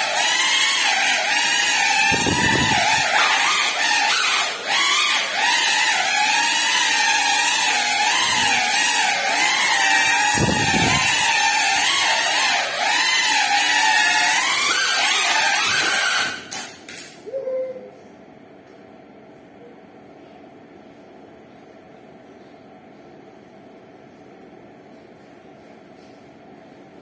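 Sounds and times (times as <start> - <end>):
drone motors whining: 0.0 - 16.7.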